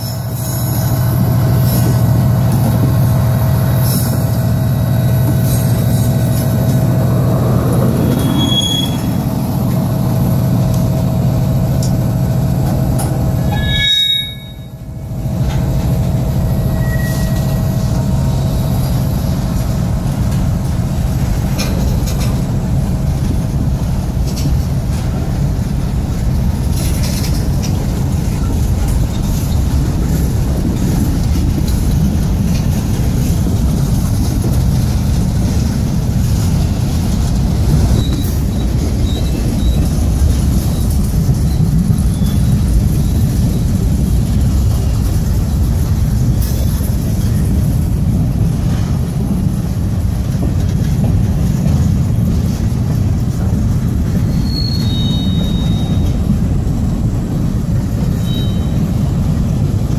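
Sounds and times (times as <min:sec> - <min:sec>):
diesel locomotive passing: 0:00.0 - 0:59.9
high wheel squeals: 0:07.7 - 0:09.6, 0:13.3 - 0:14.9, 0:16.3 - 0:17.9, 0:37.8 - 0:42.7, 0:54.1 - 0:56.3, 0:58.0 - 0:59.2.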